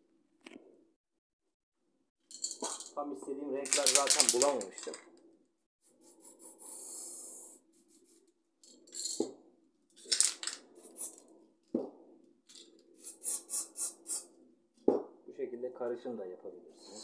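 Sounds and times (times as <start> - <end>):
spray paint can hissing bursts: 10.8 - 11.2, 13.0 - 14.2.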